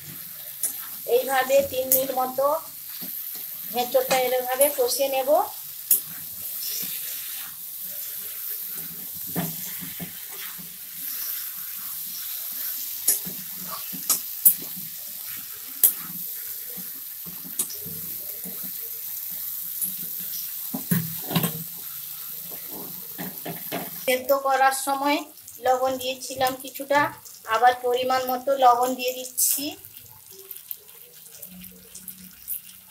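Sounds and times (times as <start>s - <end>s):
food sizzling in oil: 0.0s - 32.9s
spatula scraping a pan: 5.8s - 18.8s.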